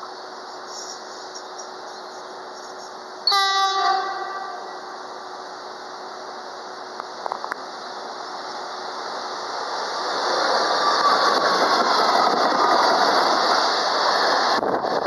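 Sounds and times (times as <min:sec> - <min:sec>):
approaching train: 0:00.0 - 0:15.0
locomotive horn blast: 0:03.2 - 0:04.9.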